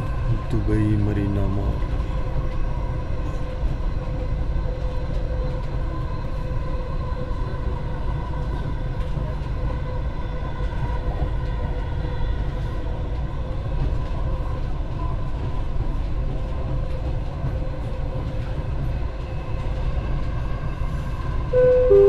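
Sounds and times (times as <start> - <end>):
train rumble: 0.0 - 22.0
two-note chime: 21.6 - 22.0.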